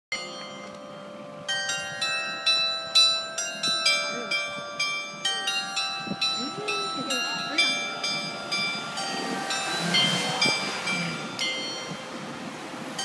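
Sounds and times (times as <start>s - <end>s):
bell chime tune: 0.1s - 12.4s.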